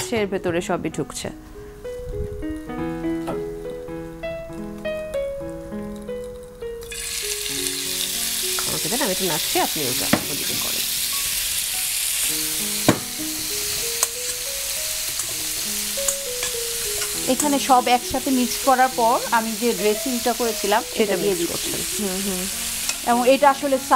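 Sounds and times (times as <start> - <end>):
beef sizzling in a pan: 5.4 - 23.9.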